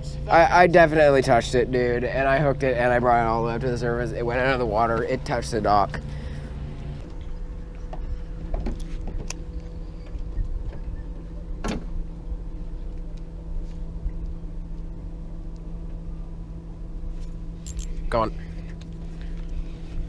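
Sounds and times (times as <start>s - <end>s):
motor humming: 0.0s - 20.0s.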